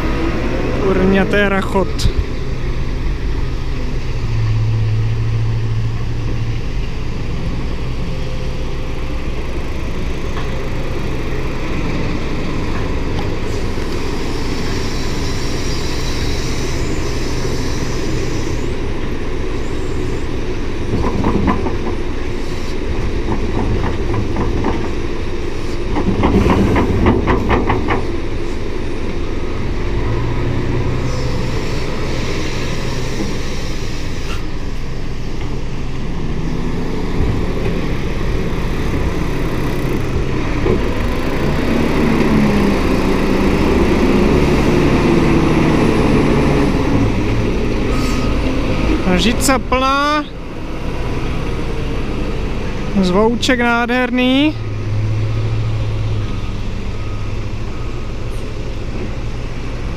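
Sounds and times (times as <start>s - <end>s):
heavy diesel engines working: 0.0s - 59.9s
engine revving: 36.3s - 57.2s.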